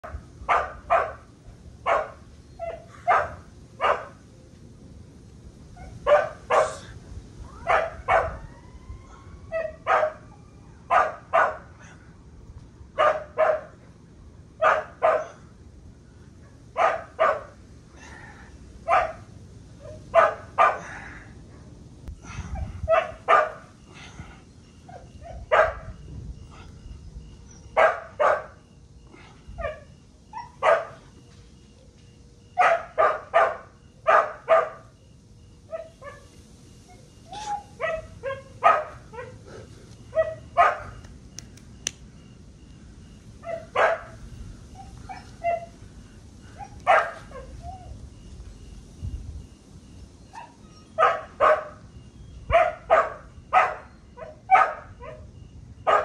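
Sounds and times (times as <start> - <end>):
dog barking: 0.5 - 1.2, 1.8 - 4.2, 6.0 - 6.9, 7.6 - 8.4, 9.6 - 10.2, 10.9 - 11.7, 13.0 - 13.8, 14.6 - 15.4, 16.8 - 17.6, 18.9 - 20.9, 22.9 - 23.6, 24.9 - 25.9, 27.8 - 28.6, 29.6 - 31.0, 32.6 - 34.9, 35.7 - 36.3, 37.4 - 39.4, 40.2 - 41.0, 43.4 - 44.2, 44.8 - 45.7, 46.6 - 47.5, 50.4 - 51.8, 52.5 - 55.3.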